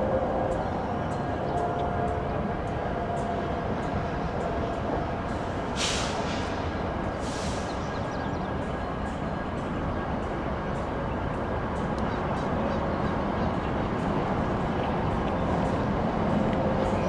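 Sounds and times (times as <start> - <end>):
diesel locomotives rumbling: 0.0 - 17.0
short hisses: 5.8 - 6.6, 7.2 - 7.8.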